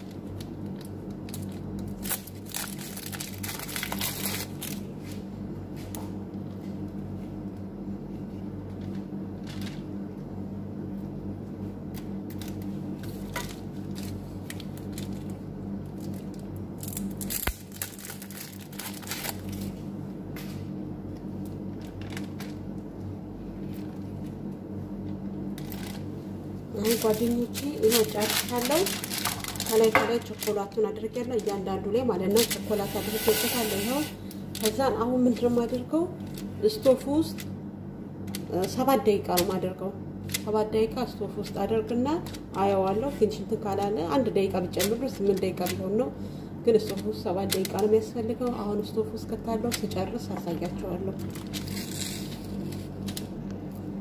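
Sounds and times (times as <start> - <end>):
parchment paper crinkling: 0.0 - 5.2, 12.3 - 19.8, 26.8 - 31.7, 32.3 - 33.0, 49.7 - 53.4
steady low hum: 0.0 - 54.0.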